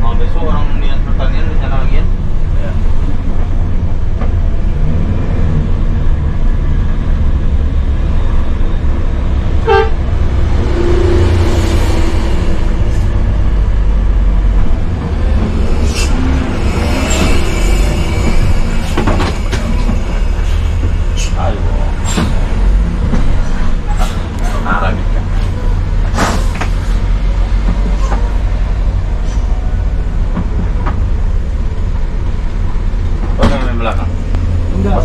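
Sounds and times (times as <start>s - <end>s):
bus diesel engine labouring: 0.0s - 35.0s
high-pitched horn toot: 9.6s - 10.0s.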